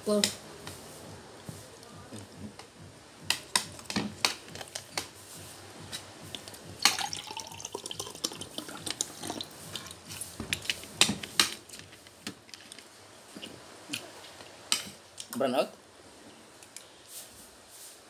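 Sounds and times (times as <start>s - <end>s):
bottle and glass clicks and knocks: 6.8s - 8.5s
water pouring into a glass: 6.8s - 9.6s.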